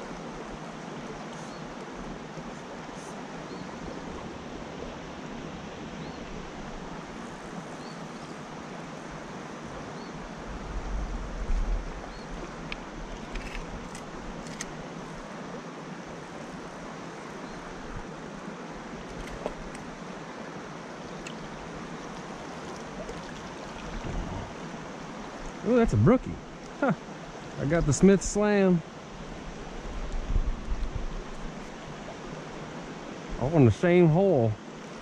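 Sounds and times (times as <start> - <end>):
creek water rushing over rocks: 0.0 - 35.0
low rumble on microphone: 23.8 - 24.7.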